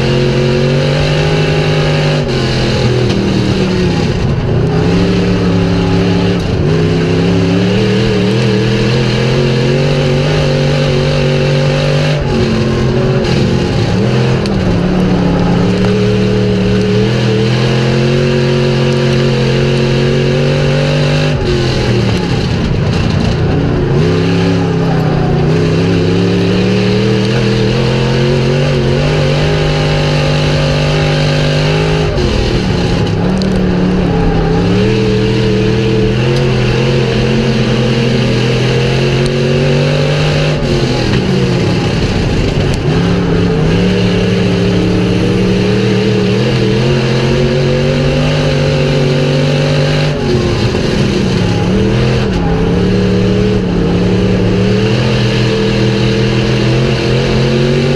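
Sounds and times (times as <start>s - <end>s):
race car engine revving: 0.0s - 57.9s.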